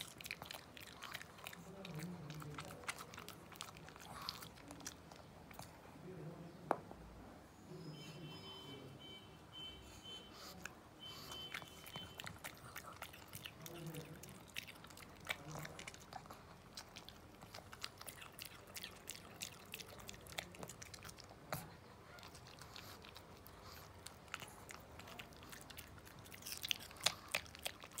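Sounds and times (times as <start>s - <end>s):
dog chewing crunchy seeds: 0.0s - 5.7s, 11.2s - 28.0s.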